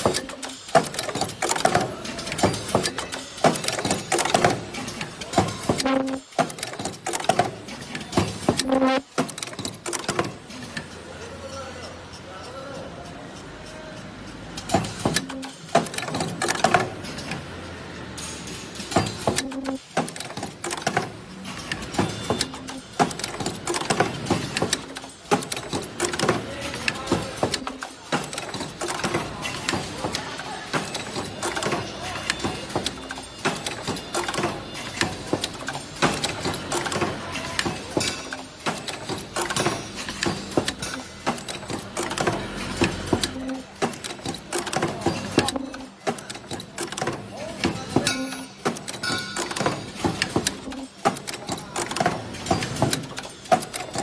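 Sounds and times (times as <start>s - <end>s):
machine clacking: 0.0s - 54.0s.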